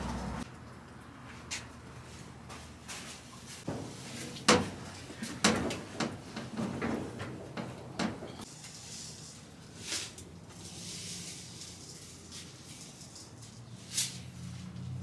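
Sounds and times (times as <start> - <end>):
knocks and clunks at washing machine: 3.7 - 8.4.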